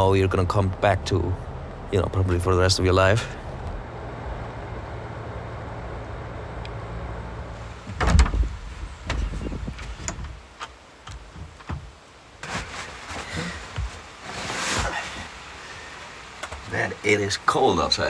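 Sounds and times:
car engine drone: 0.0 - 10.2
road noise: 0.0 - 18.0
heavy thump: 7.9 - 10.3.

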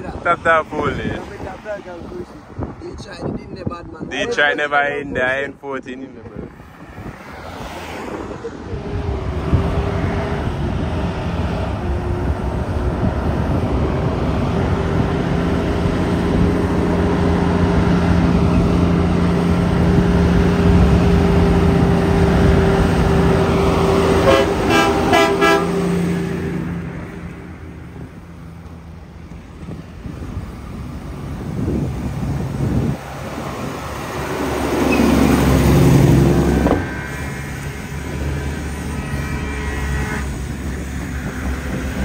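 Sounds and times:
short horn toots: 24.2 - 25.8, 38.7 - 40.4.

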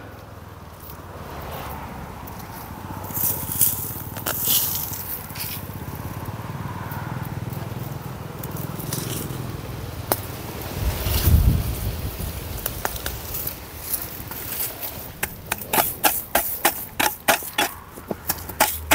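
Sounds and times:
hoe scraping soil: 10.7 - 18.9.

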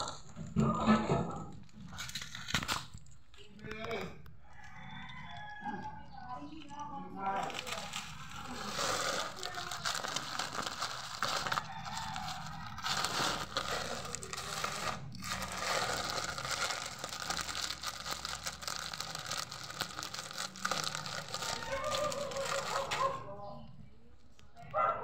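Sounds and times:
plastic bag crinkling: 1.3 - 4.1, 6.7 - 23.3.

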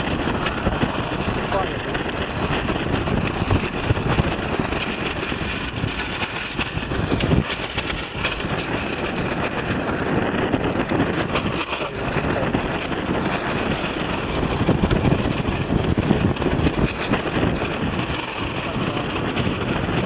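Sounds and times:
choppy water washing: 0.0 - 20.0
wind buffeting microphone: 0.0 - 20.0.

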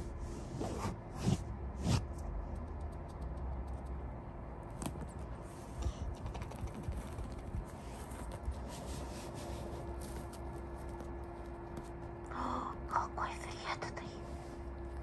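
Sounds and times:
low steady hum: 0.0 - 15.0
fabric rustling: 6.9 - 12.0.

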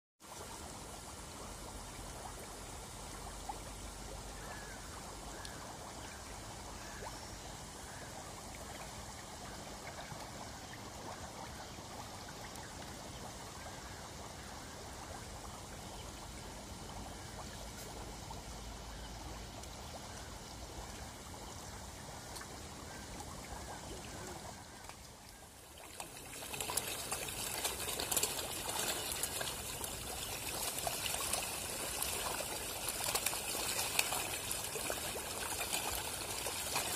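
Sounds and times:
fish splashing at water surface: 25.8 - 36.9.

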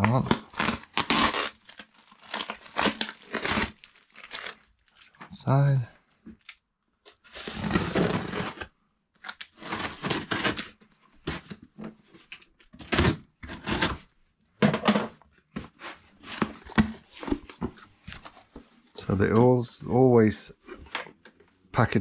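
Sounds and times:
cardboard rustling and scraping: 7.2 - 8.7, 9.5 - 14.1, 15.0 - 19.7.

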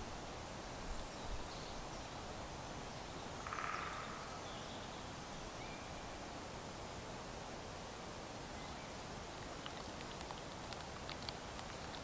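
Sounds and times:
faint outdoor hiss: 0.0 - 12.0
frog croaking: 3.4 - 4.4.

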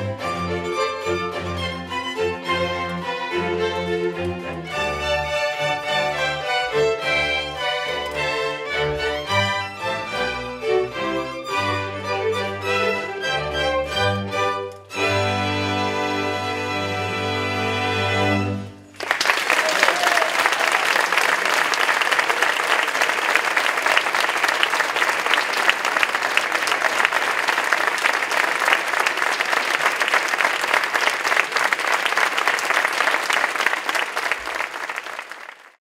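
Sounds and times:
audience applauding: 18.9 - 35.8.

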